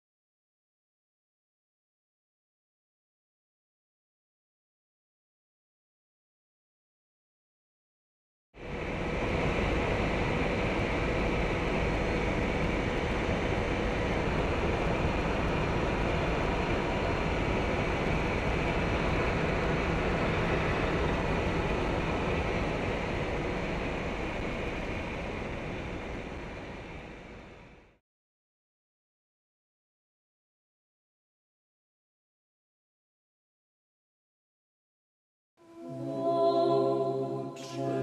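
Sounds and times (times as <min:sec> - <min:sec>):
aircraft droning in flight: 0:08.6 - 0:28.0.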